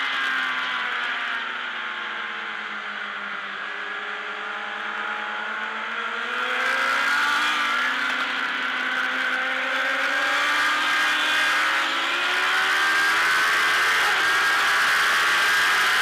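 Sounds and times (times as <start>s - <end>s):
motorcycle engine revving: 5.4s - 16.0s.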